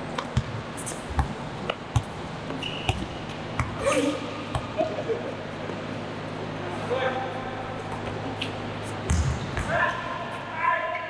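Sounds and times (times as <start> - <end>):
basketball bouncing on court: 0.1 - 3.8, 4.4 - 4.8, 9.0 - 9.8.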